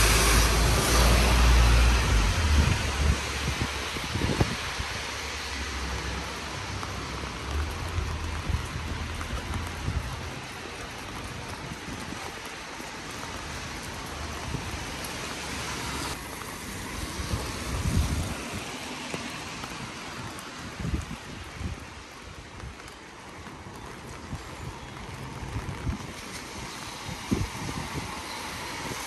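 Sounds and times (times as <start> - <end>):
steady rain hiss: 0.0 - 29.0.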